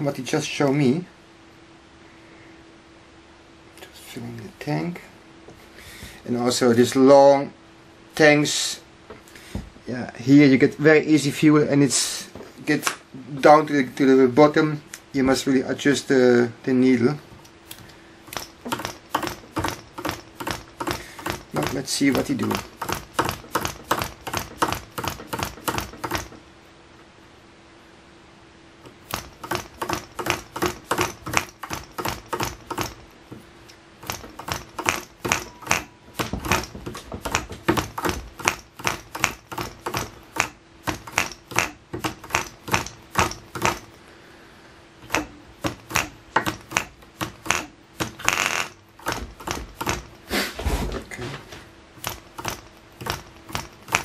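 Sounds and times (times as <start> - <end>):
model engine clicking over: 18.3 - 26.4, 29.0 - 33.0, 34.0 - 43.9, 52.0 - 54.0.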